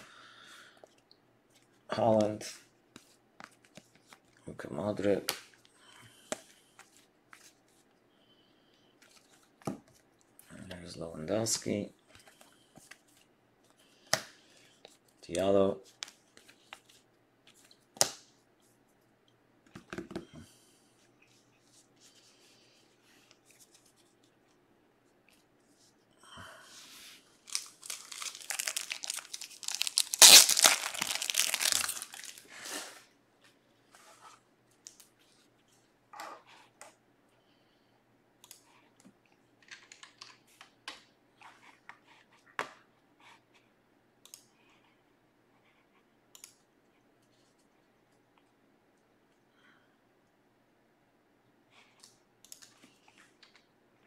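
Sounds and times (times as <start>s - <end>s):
packaging rustling and crinkling: 27.4s - 33.0s.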